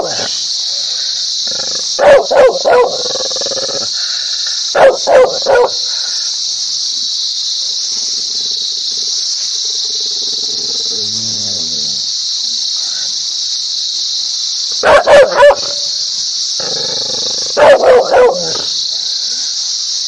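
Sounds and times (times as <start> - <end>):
steady high-pitched hiss: 0.0 - 20.0
dog barking: 2.0 - 3.1, 4.7 - 5.8, 14.8 - 15.9, 17.5 - 18.7.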